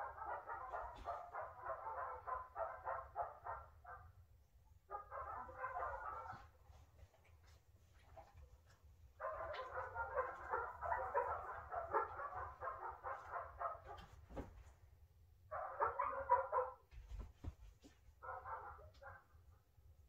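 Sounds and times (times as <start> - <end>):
dog barking: 0.0 - 4.2, 4.9 - 6.6, 9.2 - 14.5, 15.5 - 17.2, 18.2 - 19.5.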